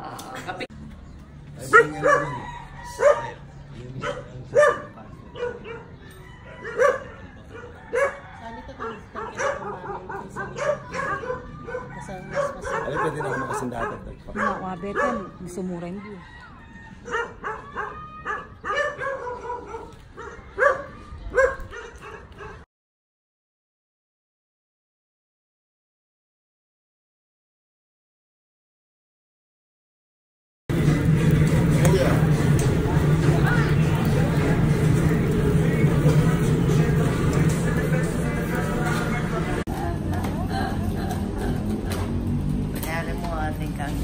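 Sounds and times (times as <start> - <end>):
dog barking: 1.6 - 3.4, 4.0 - 15.5, 17.0 - 22.6.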